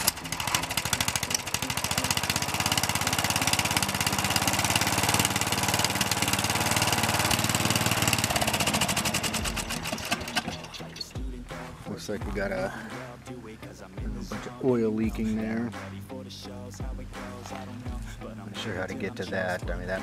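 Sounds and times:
riding mower engine running: 0:00.0 - 0:13.2.

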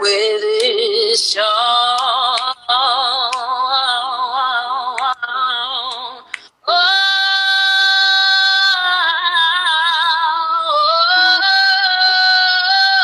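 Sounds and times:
woman singing without words: 0:00.0 - 0:13.0
woman breathing: 0:06.2 - 0:06.6.

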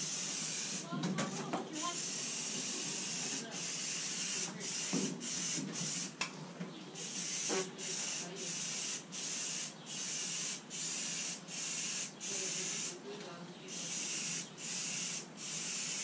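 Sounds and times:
aerosol spray can hissing: 0:00.0 - 0:00.9, 0:01.8 - 0:06.1, 0:07.0 - 0:13.0, 0:13.8 - 0:16.0.

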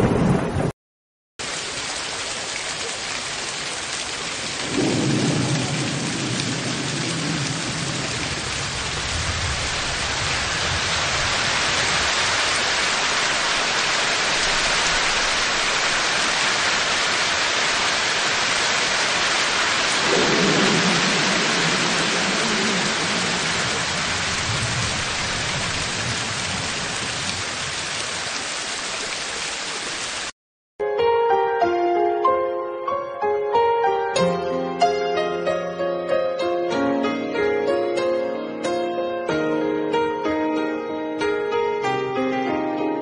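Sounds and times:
rolling thunder: 0:00.0 - 0:00.7, 0:04.6 - 0:12.3, 0:19.9 - 0:27.8
heavy rain hissing: 0:01.4 - 0:30.3.

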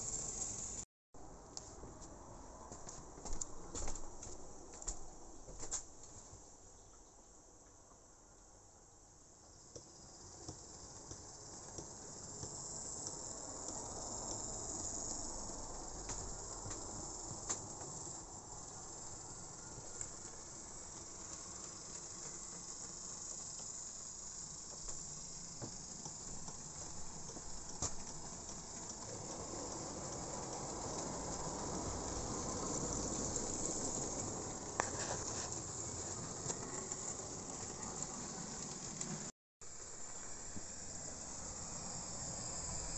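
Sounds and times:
model train running on track: 0:00.0 - 0:00.8, 0:09.5 - 0:42.9.

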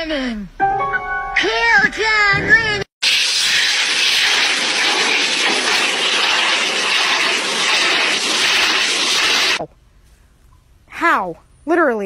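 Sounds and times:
blow dryer blasting air: 0:03.0 - 0:09.6.

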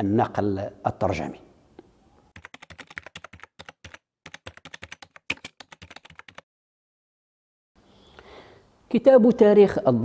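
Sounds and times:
keyboard typing: 0:02.3 - 0:06.4.

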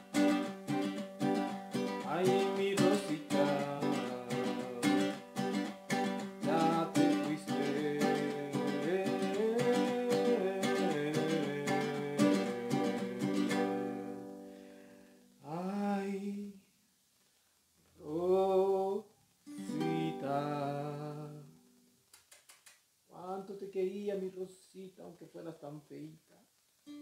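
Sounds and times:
small guitar strumming chords: 0:00.0 - 0:14.8, 0:19.5 - 0:21.6
person singing drawn-out notes: 0:02.0 - 0:05.4, 0:06.4 - 0:14.2, 0:18.0 - 0:21.6.

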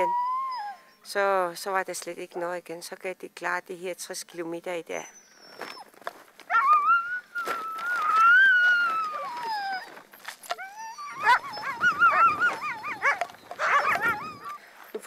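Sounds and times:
dogs whining: 0:00.0 - 0:01.1, 0:05.1 - 0:15.0.

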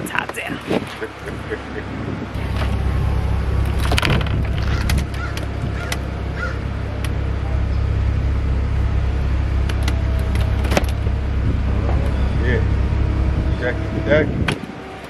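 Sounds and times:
convertible roof motor humming: 0:00.0 - 0:15.0
roof mechanism clicks and knocks: 0:03.6 - 0:07.2, 0:09.6 - 0:12.2, 0:14.4 - 0:15.0.

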